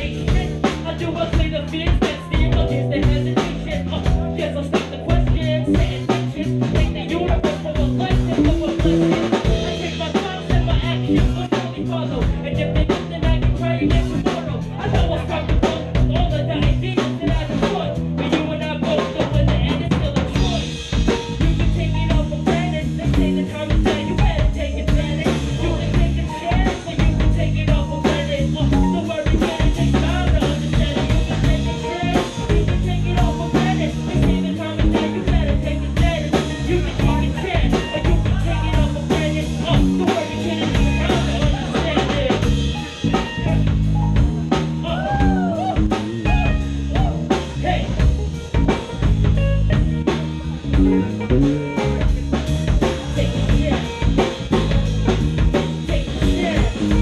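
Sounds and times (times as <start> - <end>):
drum kit playing: 0.0 - 57.0
electric bass guitar: 0.0 - 57.0.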